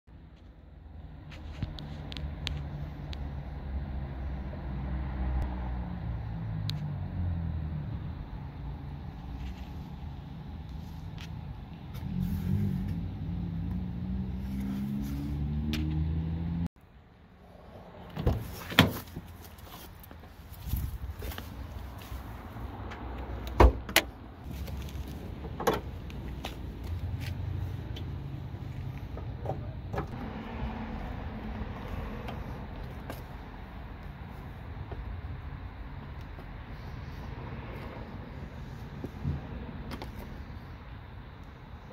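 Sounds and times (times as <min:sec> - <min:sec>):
vehicle engine rumbling: 0:00.1 - 0:41.9
car door shutting: 0:18.1 - 0:19.3.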